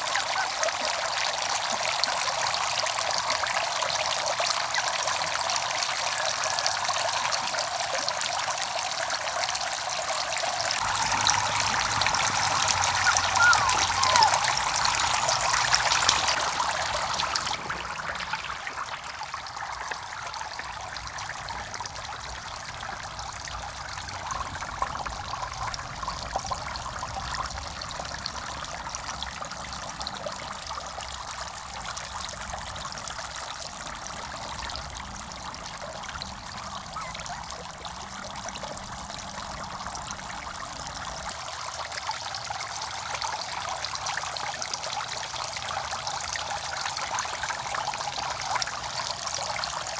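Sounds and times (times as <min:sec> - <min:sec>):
water splashing: 0:00.0 - 0:29.7, 0:33.6 - 0:41.4
fountain jets trickling into water: 0:00.0 - 0:49.9.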